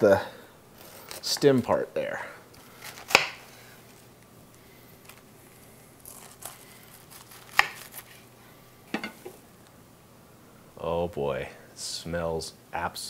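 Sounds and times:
knife slicing cabbage on board: 2.8 - 3.4, 6.1 - 8.2.

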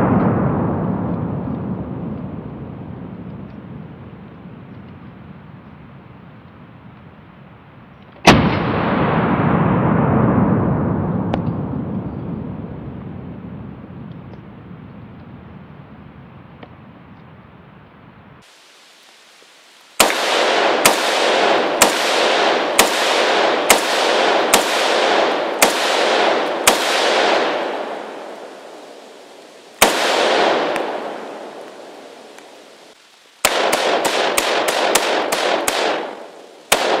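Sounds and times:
rifle shots echoing: 8.2 - 11.4, 20.0 - 37.0.

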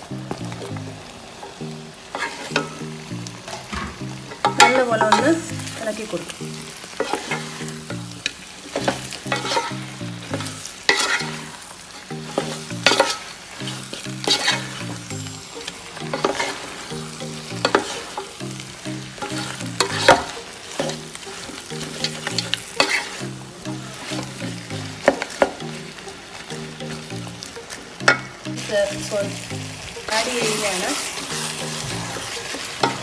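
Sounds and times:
food sizzling in a pan: 0.0 - 33.0
spatula scraping a pan: 2.1 - 2.7, 6.8 - 7.9, 8.7 - 16.9, 19.2 - 23.3.

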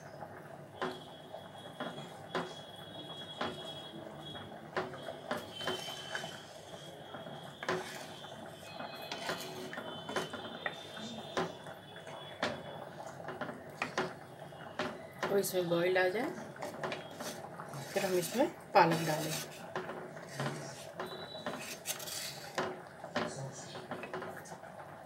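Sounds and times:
gravy sizzling in a pan: 0.0 - 24.8
wooden spatula scraping a frying pan: 5.3 - 6.9, 7.6 - 11.6, 16.5 - 22.8.

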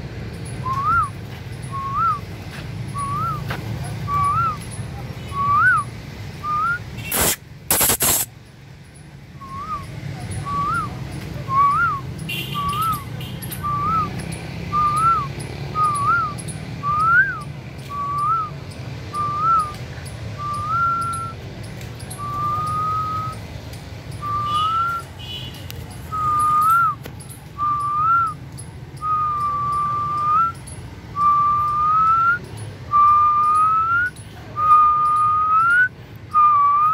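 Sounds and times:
harsh bird screeches: 7.0 - 8.3.

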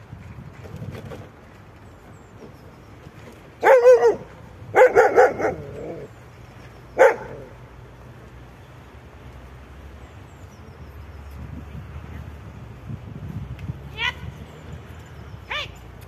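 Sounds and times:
dog barking: 3.6 - 5.8, 7.0 - 7.4.

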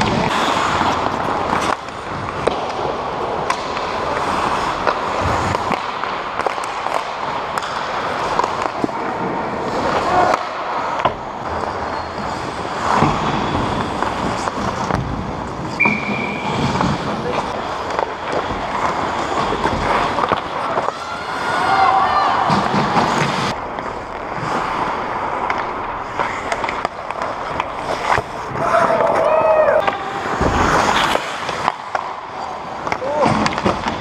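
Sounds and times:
skate blades scraping ice: 0.0 - 34.0
sticks and puck knocking: 1.0 - 11.2, 16.7 - 21.0, 25.4 - 32.1, 32.7 - 34.0.

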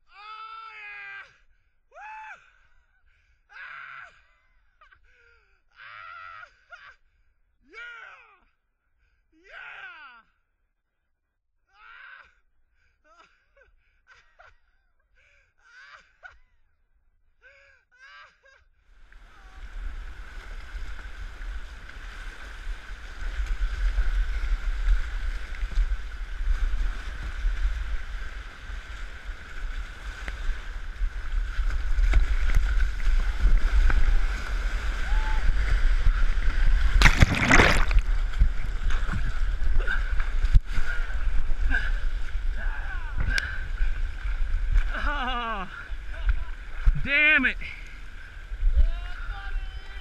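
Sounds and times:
floodwater rushing: 19.0 - 48.9
deep rumble on microphone: 29.6 - 47.1
loud splash: 31.5 - 41.9.

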